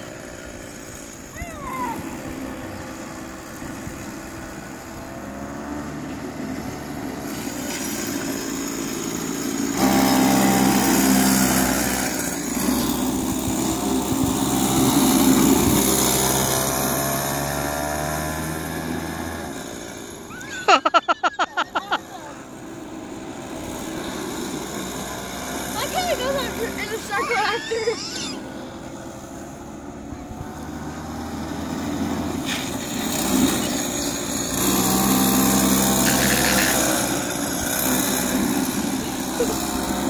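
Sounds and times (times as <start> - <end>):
go-kart engine running: 0.0 - 40.0
person's voice: 25.8 - 27.9.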